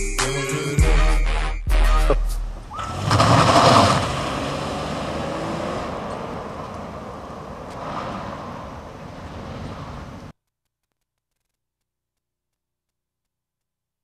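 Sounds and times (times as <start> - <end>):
car driving away: 2.5 - 10.3.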